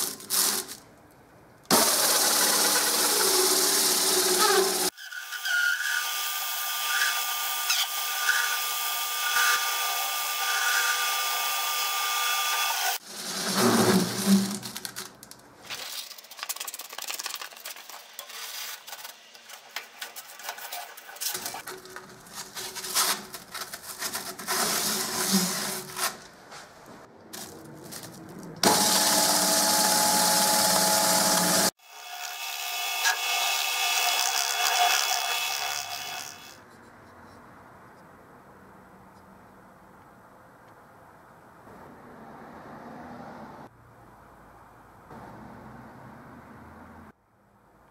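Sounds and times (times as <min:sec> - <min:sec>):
lathe motor humming: 0:28.6 - 0:31.7.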